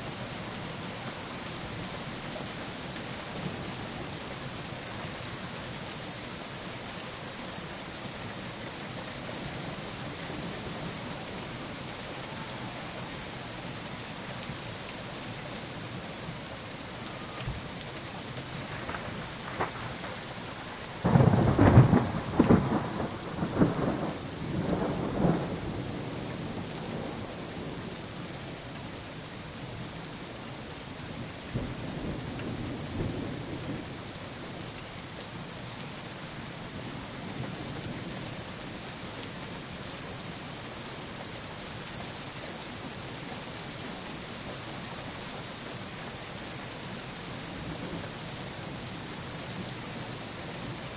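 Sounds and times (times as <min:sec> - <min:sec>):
steady rain: 0:00.0 - 0:50.9
thunder clap and rumble: 0:18.6 - 0:25.9.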